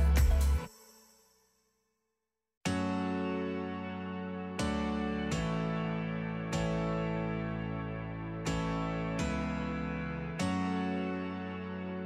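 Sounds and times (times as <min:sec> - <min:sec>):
instrumental music chords: 0:00.0 - 0:00.7.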